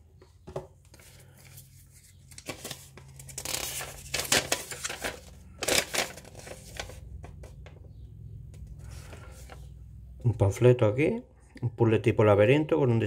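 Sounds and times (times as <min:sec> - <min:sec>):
cardboard and paper rustling: 0:00.5 - 0:07.7, 0:08.6 - 0:09.7.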